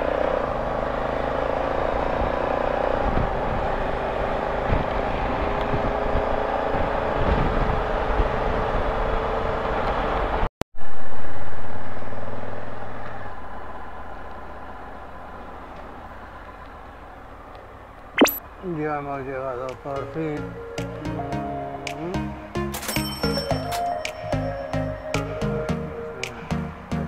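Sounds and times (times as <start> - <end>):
wind and road noise: 0.0 - 19.2.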